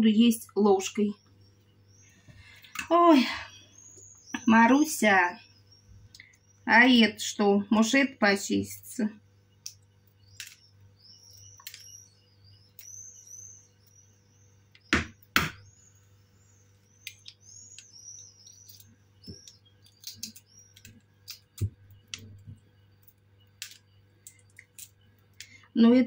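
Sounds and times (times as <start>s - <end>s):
birds chirping: 0.0s - 26.0s
faint steady hum: 0.0s - 26.0s
eggshell crackling: 9.5s - 15.9s, 16.6s - 25.6s.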